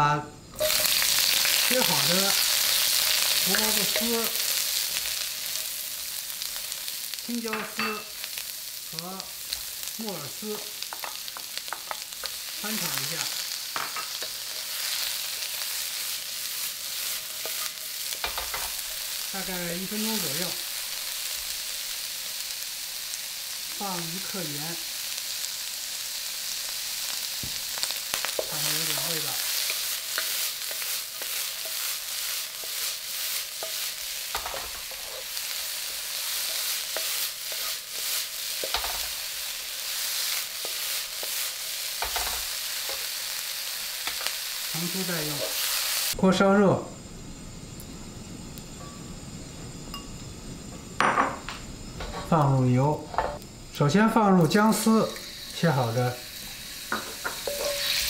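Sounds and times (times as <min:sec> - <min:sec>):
vegetables sizzling in hot oil: 0:00.0 - 0:58.0
wooden spatula scraping a wok: 0:10.5 - 0:20.6, 0:27.8 - 0:43.2
wok thudding on burner: 0:13.7 - 0:14.4, 0:17.5 - 0:18.9, 0:27.4 - 0:31.8, 0:33.6 - 0:35.2, 0:38.6 - 0:39.2, 0:42.0 - 0:43.0, 0:51.0 - 0:52.3, 0:56.9 - 0:58.0.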